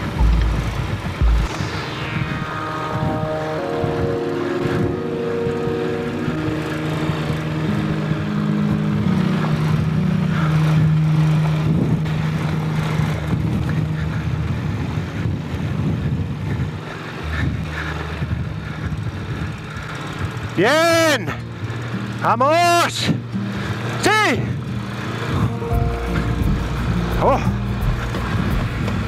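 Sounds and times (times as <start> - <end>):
motorcycle engine climbing: 0.0 - 2.6, 23.2 - 29.0.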